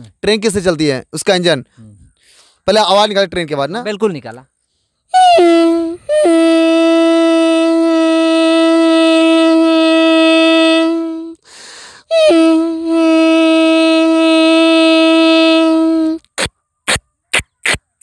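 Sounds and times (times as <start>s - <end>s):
quick breath: 1.8s - 2.6s, 11.4s - 12.1s
man imitating train horn: 5.2s - 11.4s, 12.1s - 16.2s.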